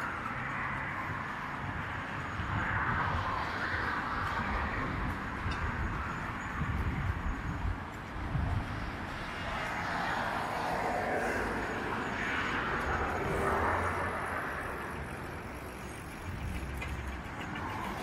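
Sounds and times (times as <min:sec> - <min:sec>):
cars passing: 0:00.0 - 0:18.0
vehicle approaching: 0:00.0 - 0:18.0.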